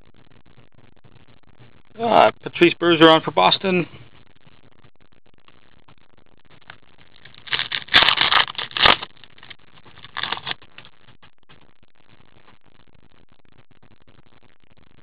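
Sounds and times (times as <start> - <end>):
trading cards rustling: 7.2 - 10.6.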